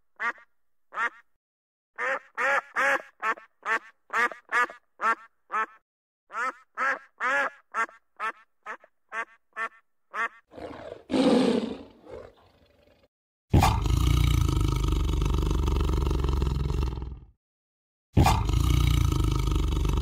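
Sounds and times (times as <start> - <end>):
duck quacking: 0.2 - 1.3, 2.0 - 10.5
large animal calling: 10.5 - 13.0.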